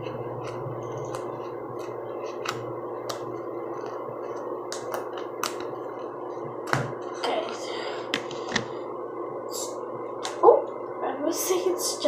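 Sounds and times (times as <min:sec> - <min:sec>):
fingers kneading slime: 0:00.0 - 0:07.0
air conditioning vent hum: 0:00.0 - 0:12.0.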